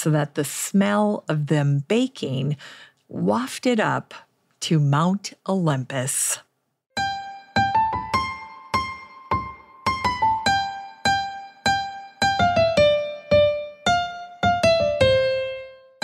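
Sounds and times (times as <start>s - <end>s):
keyboard melody of single notes: 7.0s - 16.0s.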